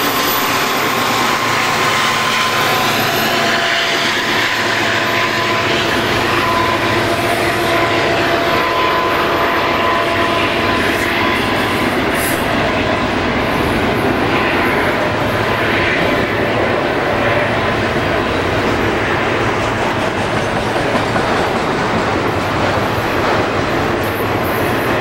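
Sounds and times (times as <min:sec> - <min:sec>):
wheel squeal: 0:00.0 - 0:07.0
diesel locomotive drone: 0:00.0 - 0:25.0.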